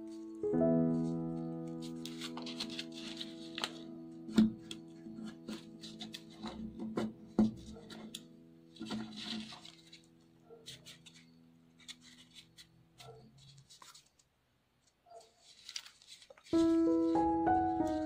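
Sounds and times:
background music: 0.0 - 8.9, 16.6 - 18.0
paper crackling as folded: 0.9 - 18.0.

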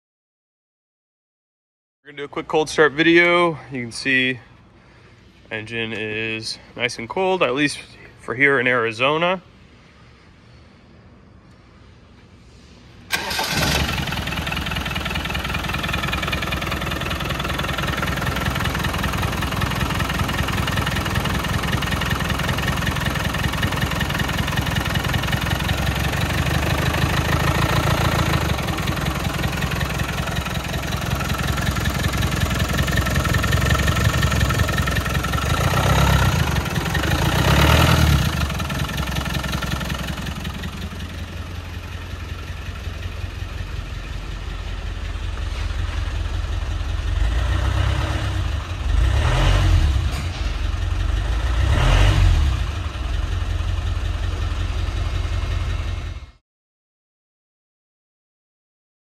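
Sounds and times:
diesel engine idling: 13.1 - 56.4.

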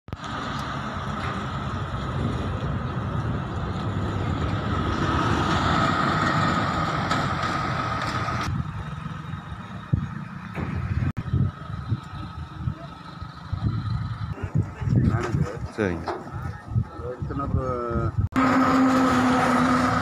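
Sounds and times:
heavy truck driving past: 0.1 - 14.4, 18.4 - 20.0.

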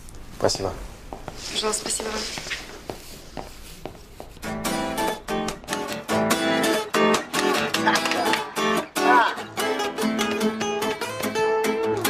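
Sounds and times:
strummed acoustic guitar: 4.4 - 12.0.

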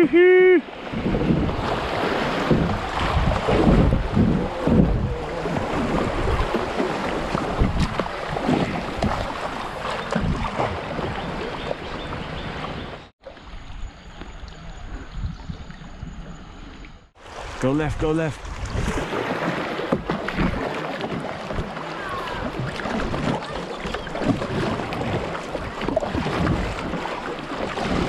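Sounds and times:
river water rushing and splashing: 0.0 - 13.9, 17.2 - 28.0
wind buffeting microphone: 0.7 - 19.2.

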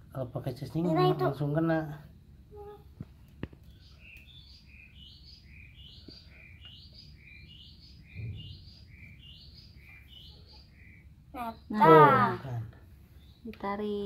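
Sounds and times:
bird chirping: 2.6 - 14.0
soft low thump: 8.1 - 8.6.

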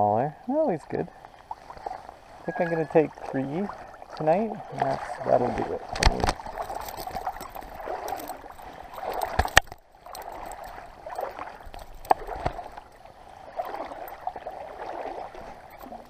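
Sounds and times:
handling rustling: 5.4 - 13.0.

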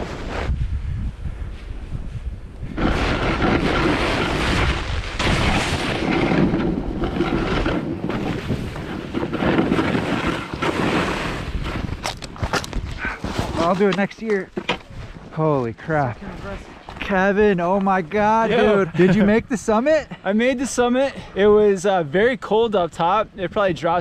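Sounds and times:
snowboard scraping over snow: 0.0 - 0.8, 2.6 - 12.0
wind buffeting microphone: 0.0 - 20.0.

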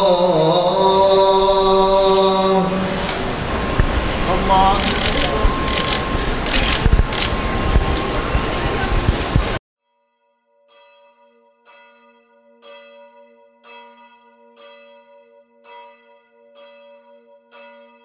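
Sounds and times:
bell tolling: 0.0 - 9.5.

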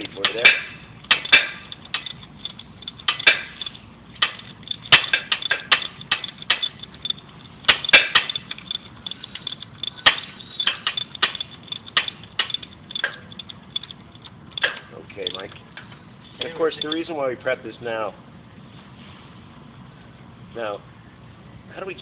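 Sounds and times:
torque wrench metallic clicks: 0.0 - 17.1.

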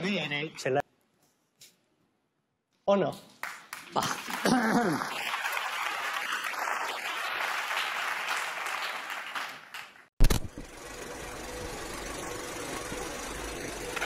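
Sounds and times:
audience applauding: 3.4 - 10.1.

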